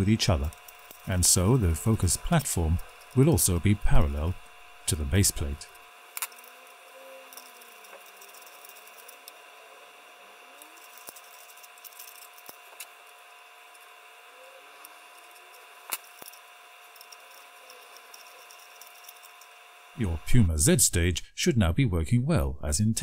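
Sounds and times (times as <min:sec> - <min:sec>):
small parts rattling: 0:00.0 - 0:09.6, 0:10.4 - 0:14.0, 0:14.6 - 0:19.6
faint steady hum: 0:00.0 - 0:23.0.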